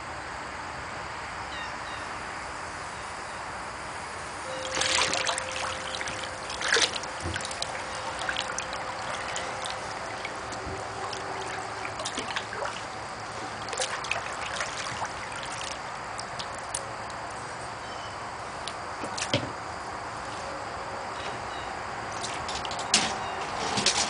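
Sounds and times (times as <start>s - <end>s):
hand splashing in water: 4.6s - 16.8s.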